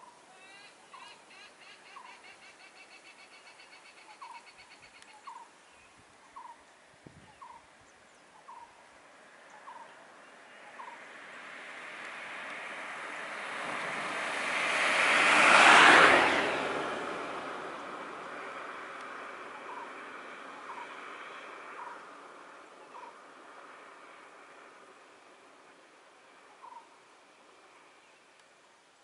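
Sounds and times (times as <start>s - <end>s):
car passing close by: 9.0s - 28.1s.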